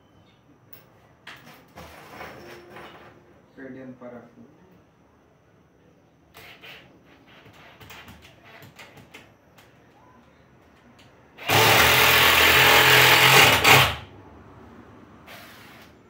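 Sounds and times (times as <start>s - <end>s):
cordless drill into wood: 11.4s - 14.1s.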